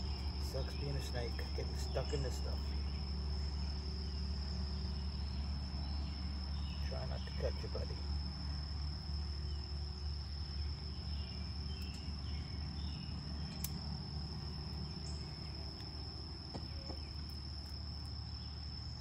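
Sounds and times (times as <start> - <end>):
insect chorus: 0.0 - 19.0
low steady rumble: 0.0 - 19.0.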